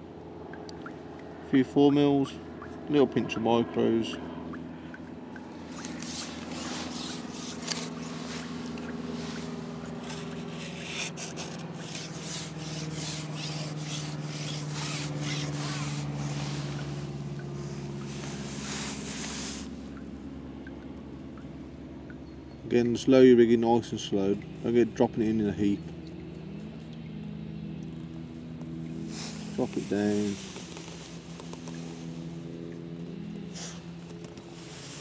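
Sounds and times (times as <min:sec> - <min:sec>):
steady low hum: 0:00.0 - 0:35.0
fishing pole sections rubbing: 0:05.5 - 0:20.0, 0:29.0 - 0:35.0.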